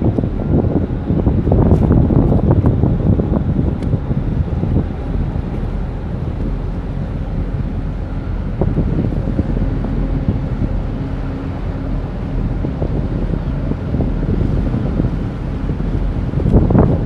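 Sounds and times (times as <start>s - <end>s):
choppy water splashing: 0.0s - 17.0s
ship engines droning: 0.0s - 17.0s
wind buffeting microphone: 0.0s - 17.0s.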